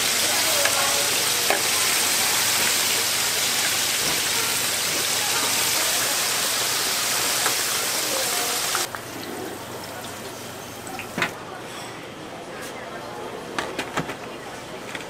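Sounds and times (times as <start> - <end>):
oil sizzling in a deep fryer: 0.0 - 11.2.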